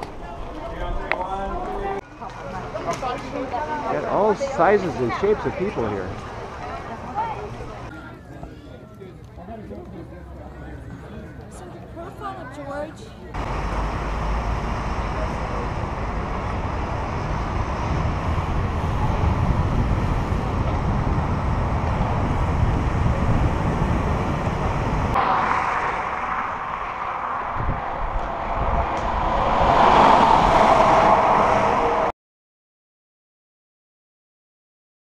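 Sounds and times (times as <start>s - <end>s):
road noise: 0.0s - 8.1s, 9.2s - 32.1s
traffic: 0.0s - 8.5s, 9.1s - 32.1s
high rushing noise: 13.4s - 32.1s
wind rumble on microphone: 15.1s - 32.1s.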